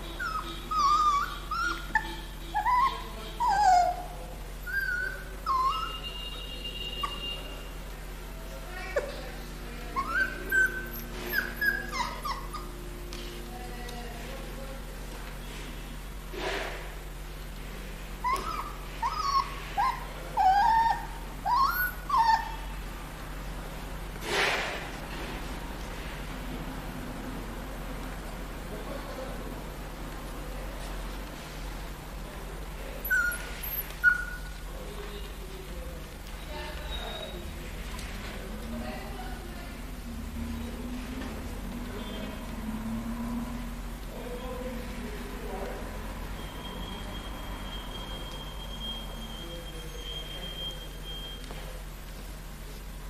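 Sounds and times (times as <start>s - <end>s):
puppy whimpering and yelping: 0.0s - 6.1s, 9.8s - 12.9s, 18.2s - 22.7s, 33.0s - 34.6s
short breathy puff: 16.3s - 16.9s, 24.2s - 24.8s.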